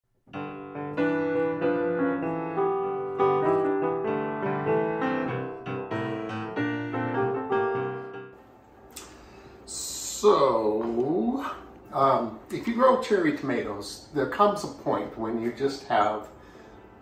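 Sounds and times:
piano music: 0.3 - 8.5.

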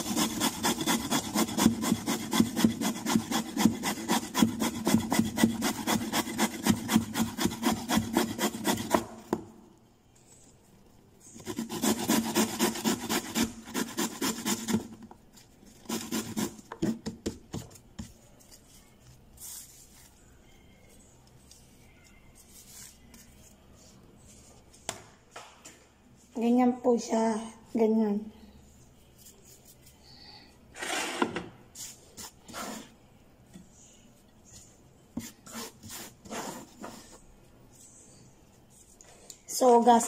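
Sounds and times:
carrot grating on metal grater: 0.0 - 9.0, 11.4 - 14.8.

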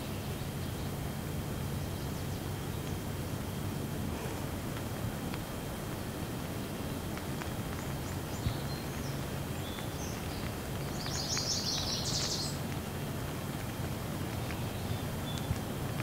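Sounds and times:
heavy rain pouring: 0.9 - 16.0
bird chirping trill: 8.3 - 12.6.

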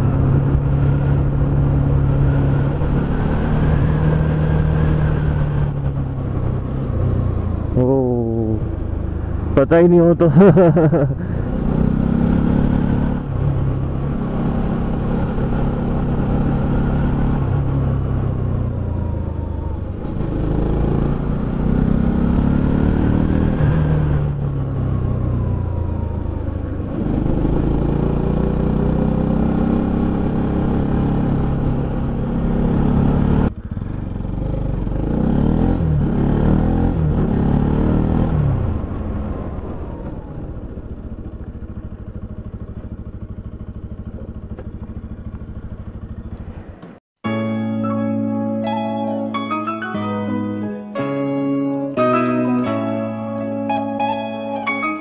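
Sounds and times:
motorcycle engine revving: 0.0 - 47.0.

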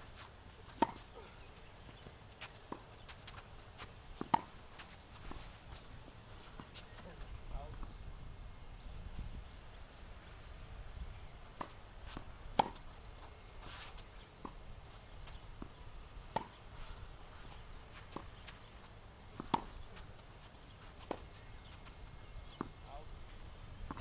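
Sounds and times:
tennis ball hit with rackets: 0.8 - 1.0, 4.2 - 4.6, 11.5 - 12.8, 19.4 - 19.8.

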